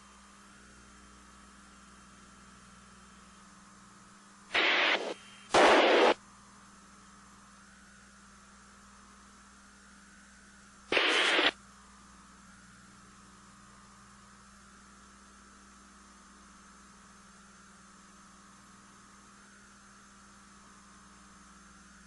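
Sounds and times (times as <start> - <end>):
loud static burst: 4.5 - 6.2, 10.9 - 11.6
radio static hiss and hum: 4.5 - 6.2, 10.9 - 11.6.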